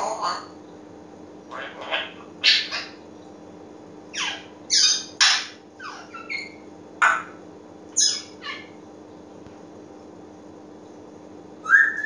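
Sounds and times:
parrot squawks and whistles: 4.1 - 7.3, 8.0 - 8.7, 11.6 - 12.0.

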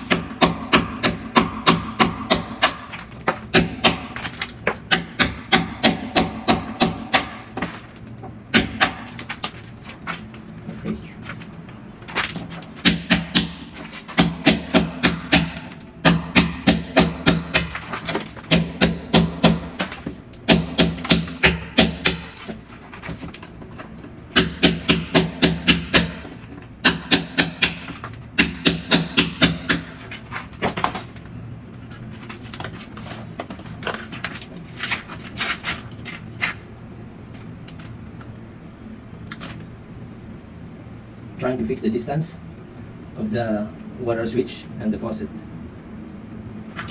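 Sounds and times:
hammer striking a chisel: 0.0 - 7.7, 8.5 - 9.1, 12.8 - 17.8, 18.5 - 22.4, 24.3 - 30.0.

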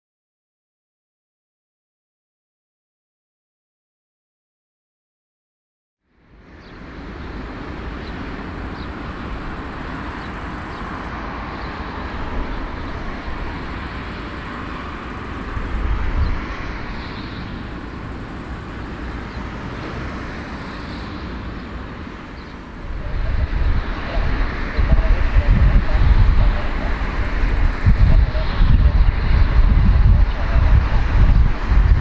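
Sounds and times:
jet engines rushing: 6.2 - 32.0.

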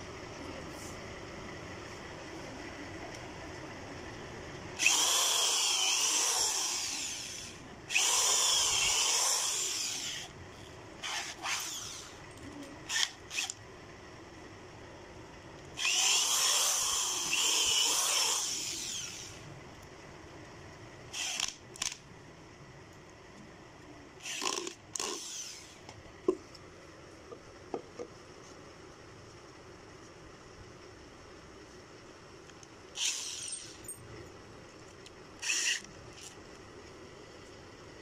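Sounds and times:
electric drill whining: 4.8 - 10.3, 11.0 - 12.2, 15.8 - 19.4, 21.2 - 21.9, 24.2 - 25.8, 33.0 - 33.9, 35.4 - 36.4.

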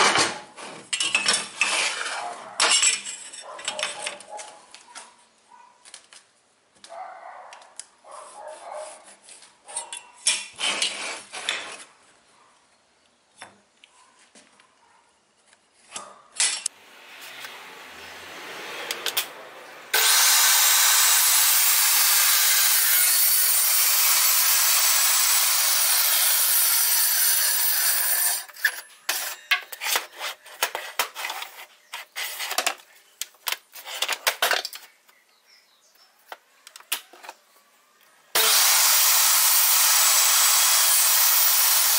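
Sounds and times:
table saw cutting wood: 16.8 - 28.7, 38.4 - 41.9.

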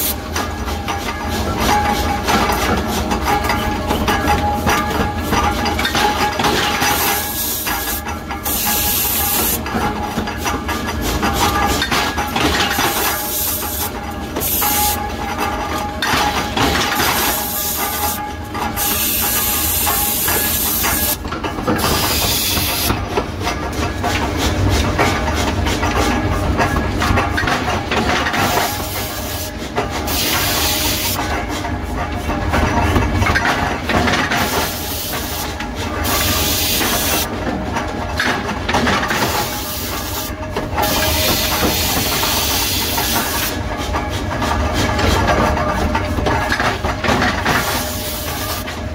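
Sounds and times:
forge machinery hum and rumble: 0.0 - 48.9.

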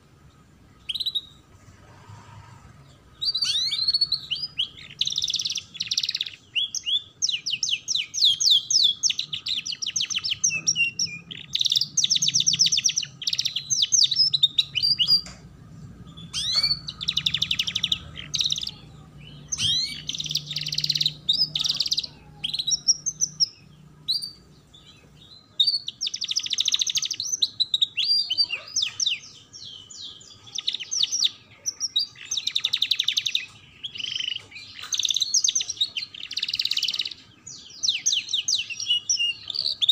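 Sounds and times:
canary singing trills and chirps: 0.0 - 39.9.

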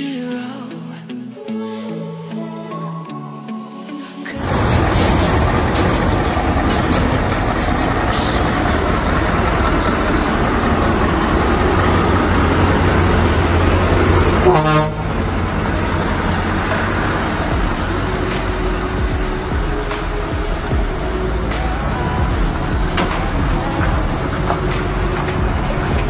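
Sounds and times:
diesel truck engine running: 4.4 - 26.0
truck horn toot: 14.0 - 16.1.

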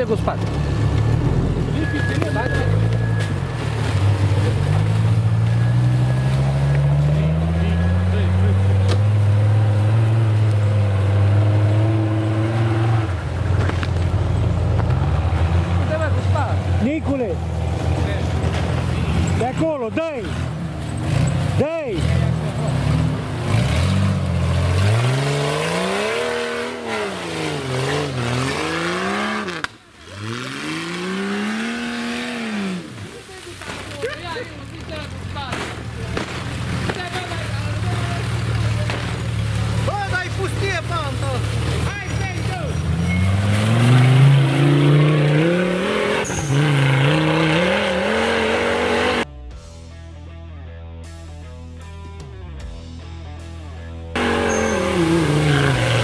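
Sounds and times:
pickup engine revving hard: 4.0 - 13.3, 20.3 - 33.0, 42.8 - 49.3, 54.2 - 56.0.

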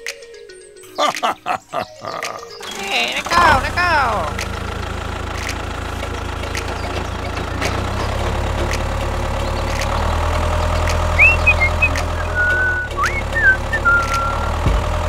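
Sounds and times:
tractor engine ticking: 1.1 - 15.0
short high chirps: 11.2 - 14.6.

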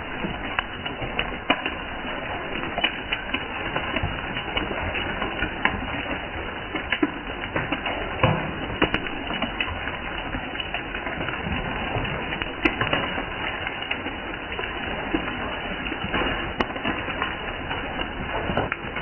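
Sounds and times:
steady rain hiss: 0.0 - 4.8
raindrops tapping hard surfaces: 0.0 - 19.0.

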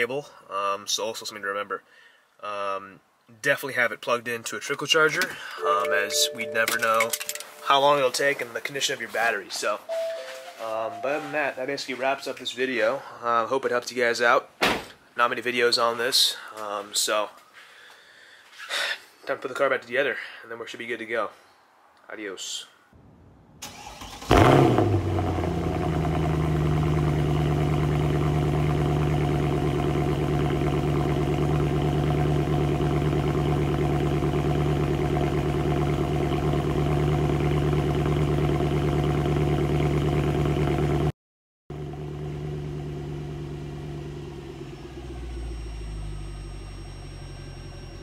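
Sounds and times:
car engine starting and idling: 5.1 - 8.2, 23.6 - 41.1, 41.7 - 48.0.

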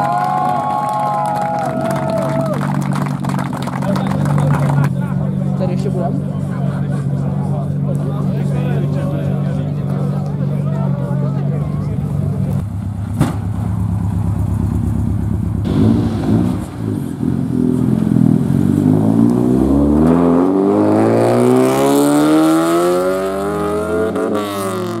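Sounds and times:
car engine running at low revs: 1.8 - 25.0
car engine revving pulling away: 11.4 - 25.0.

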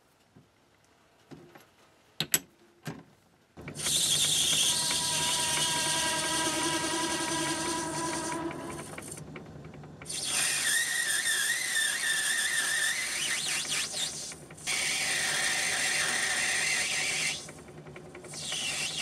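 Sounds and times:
lathe tool squealing: 3.8 - 9.2, 10.1 - 17.6, 18.3 - 19.0.

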